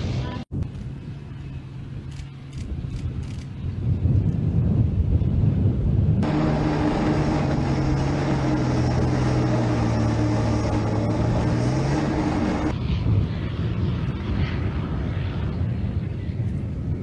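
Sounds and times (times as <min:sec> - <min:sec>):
distant rumble: 0:06.0 - 0:17.0
loud engine drone: 0:06.1 - 0:16.5.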